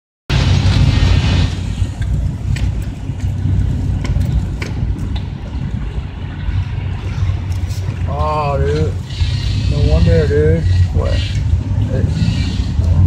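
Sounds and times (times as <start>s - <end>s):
truck engine rumbling: 0.3s - 13.0s
sharp clicks and knocks: 1.9s - 5.4s.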